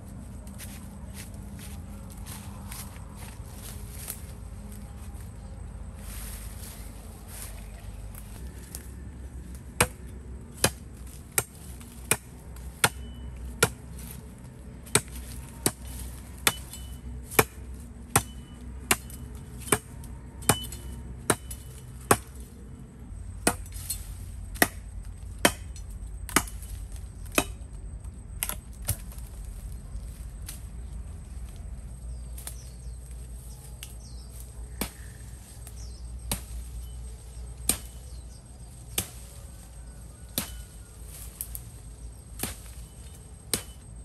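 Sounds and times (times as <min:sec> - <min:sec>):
firewood chopping strikes: 0:09.7 - 0:14.1, 0:14.8 - 0:22.5, 0:23.4 - 0:27.7, 0:28.4 - 0:29.7, 0:34.0 - 0:41.6, 0:42.3 - 0:44.0.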